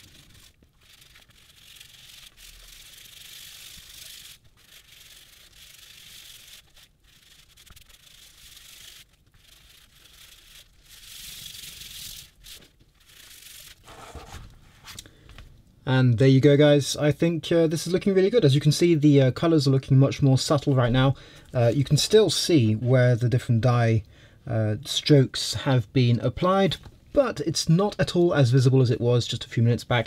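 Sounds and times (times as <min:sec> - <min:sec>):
hands rubbing leather: 0:00.0 - 0:15.0.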